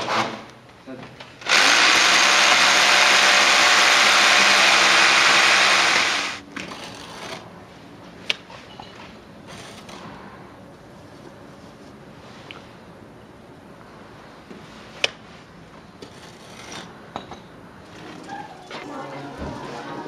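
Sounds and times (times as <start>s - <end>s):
electric drill boring: 1.4s - 6.4s
trowel scraping mortar: 16.0s - 16.9s.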